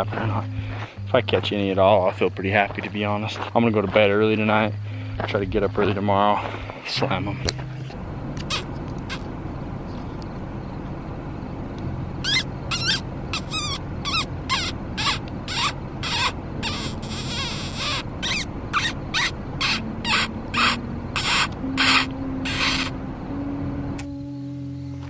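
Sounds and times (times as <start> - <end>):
low steady hum: 0.0 - 25.0
animal squeaking calls: 8.4 - 9.3, 12.2 - 23.0.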